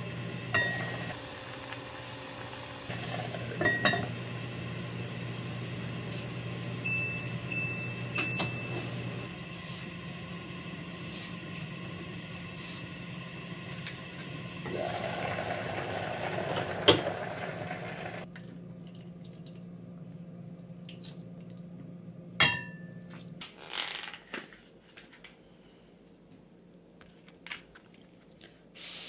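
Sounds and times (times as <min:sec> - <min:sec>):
water sloshing and dripping: 0:18.3 - 0:21.7.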